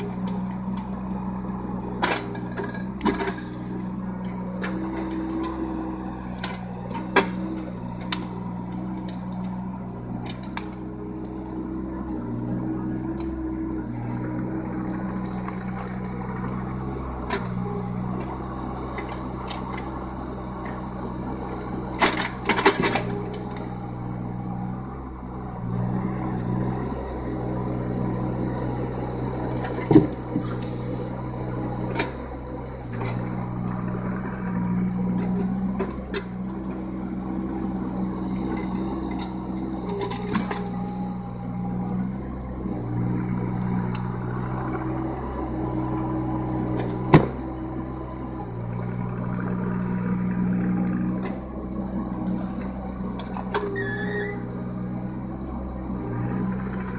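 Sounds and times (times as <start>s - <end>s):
excavator diesel engine: 0.0s - 56.9s.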